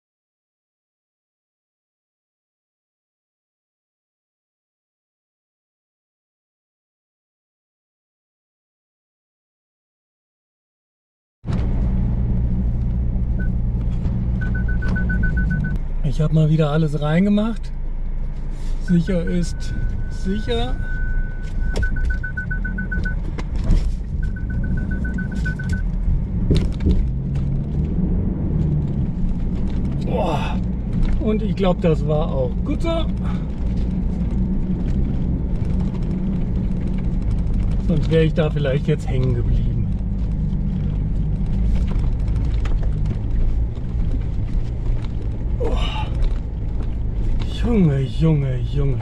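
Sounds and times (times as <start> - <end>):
vehicle knocks and rattles: 11.5 - 15.9, 19.8 - 49.0
car rumbling over dirt track: 11.5 - 49.0
vehicle engine droning: 11.5 - 49.0
electronic warning beeps: 14.4 - 15.8, 18.9 - 23.2, 24.2 - 25.9.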